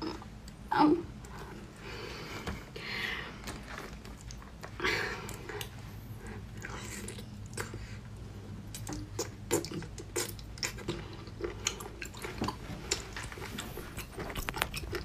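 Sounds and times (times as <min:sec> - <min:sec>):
person chewing wet mouth sounds: 0:08.7 - 0:15.0.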